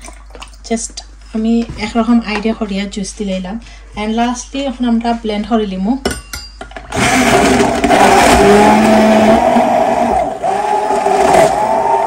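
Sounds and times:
stick blender running: 6.9s - 12.0s.

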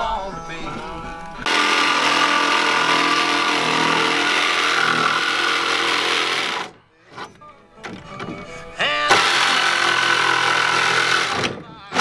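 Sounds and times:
jigsaw cutting panel: 1.4s - 6.8s, 9.1s - 12.0s.

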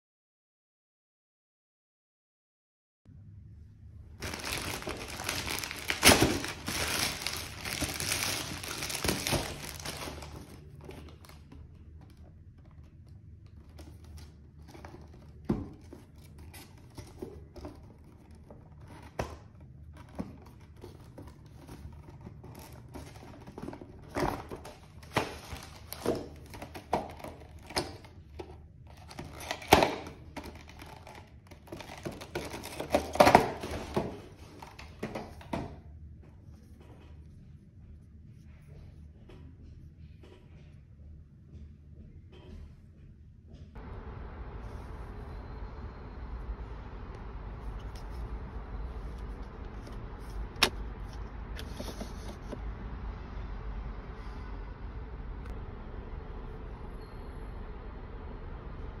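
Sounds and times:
plastic mailer bag tearing and crinkling: 4.2s - 11.4s, 21.9s - 28.1s, 28.9s - 34.9s.

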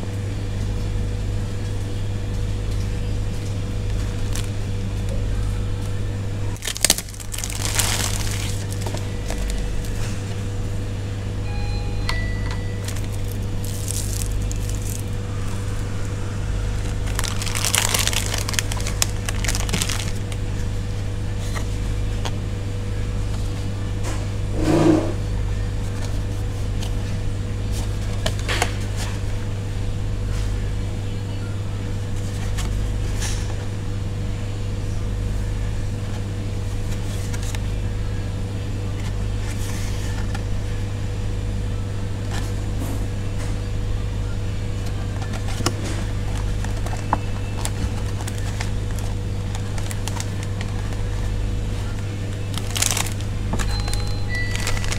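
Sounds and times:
steady low hum: 0.0s - 54.9s
plastic wrapping crinkling: 3.9s - 4.6s, 6.6s - 10.1s, 12.8s - 15.9s, 16.6s - 20.4s, 45.2s - 54.9s.

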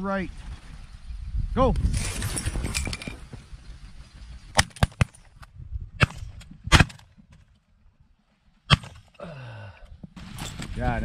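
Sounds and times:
shotgun shots: 6.0s - 7.1s, 8.7s - 9.1s.

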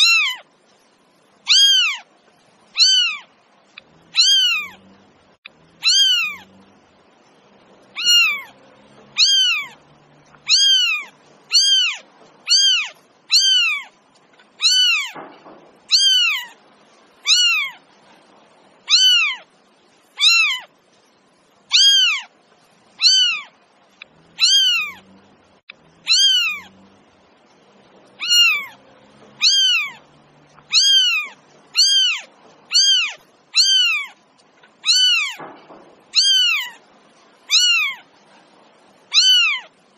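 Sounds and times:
cat meowing: 0.0s - 0.5s, 1.5s - 2.1s, 2.7s - 3.3s, 4.1s - 4.9s, 5.8s - 6.5s, 7.9s - 14.0s, 14.6s - 15.2s, 15.9s - 16.6s, 17.2s - 17.8s, 18.8s - 19.5s, 20.2s - 20.7s, 21.7s - 22.3s, 23.0s - 23.6s, 24.2s - 25.1s, 26.0s - 26.8s, 28.1s - 34.2s, 34.8s - 35.5s, 36.1s - 36.8s, 37.4s - 38.1s, 39.1s - 39.7s.

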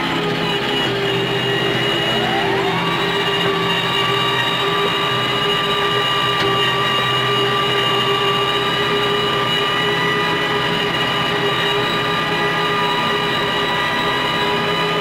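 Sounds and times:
mower drive whine: 0.0s - 15.0s
tractor diesel engine drone: 0.0s - 15.0s.

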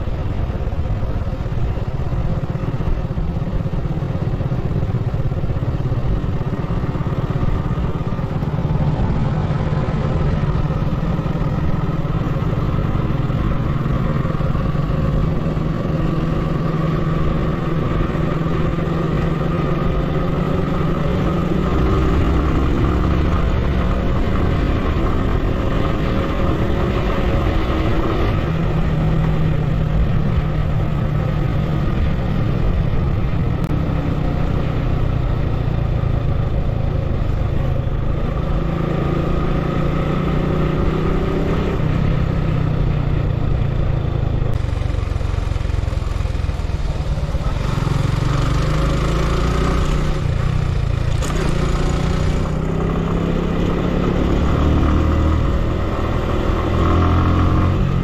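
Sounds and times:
road and wind noise: 0.0s - 58.0s
vehicle engine running: 0.0s - 58.0s.

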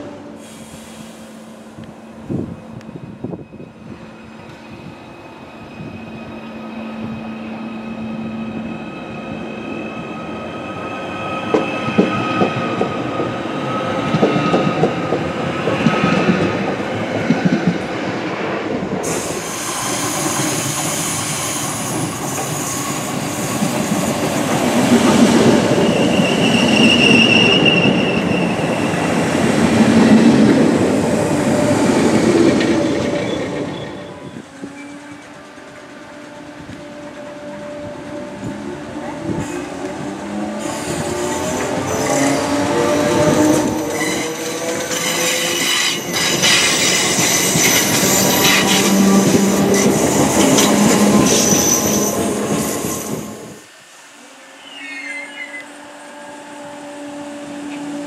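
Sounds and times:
high wheel squeal: 3.3s - 16.3s, 19.0s - 24.0s, 25.6s - 29.2s, 32.8s - 35.3s, 43.2s - 53.6s, 54.5s - 56.0s.

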